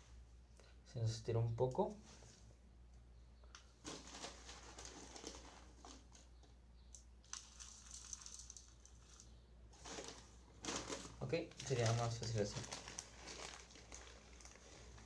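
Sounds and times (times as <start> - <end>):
plastic bag crinkling: 3.8 - 6.3, 7.2 - 15.0.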